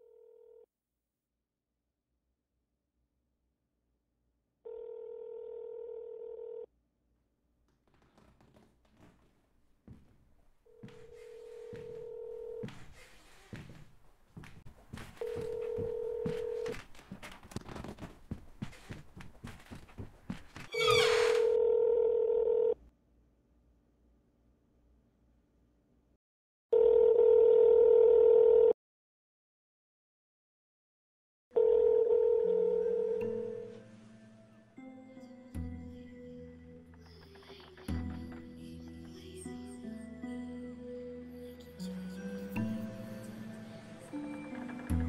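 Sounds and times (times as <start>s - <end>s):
telephone ringback tone: 4.7s - 6.7s, 11.0s - 12.7s, 15.2s - 16.7s, 21.5s - 22.8s, 26.8s - 28.8s, 31.6s - 33.7s
shrill squeal: 20.7s - 21.6s.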